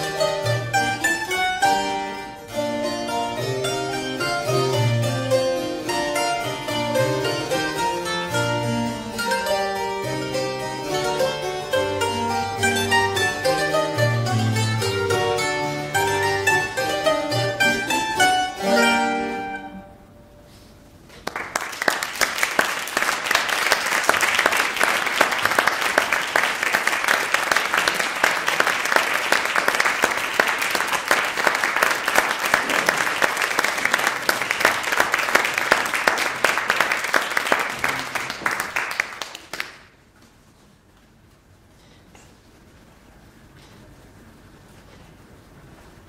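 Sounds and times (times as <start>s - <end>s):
plucked mandolin and harpsichord: 0.0s - 20.4s
audience applauding: 21.1s - 40.0s.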